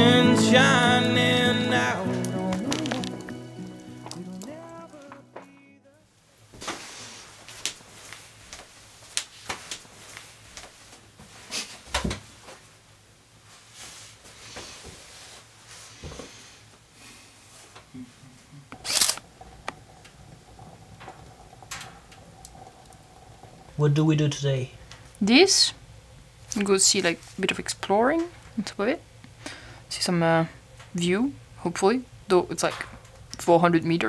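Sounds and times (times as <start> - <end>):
rustles at a table: 13.4 - 16.5.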